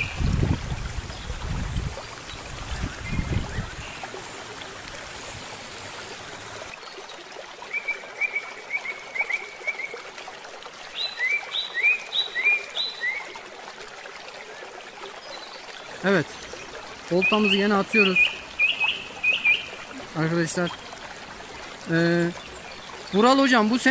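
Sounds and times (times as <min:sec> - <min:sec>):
water hiss: 0:00.0 - 0:06.8
mountain stream rushing: 0:00.0 - 0:23.9
songbird chirping: 0:15.3 - 0:21.1.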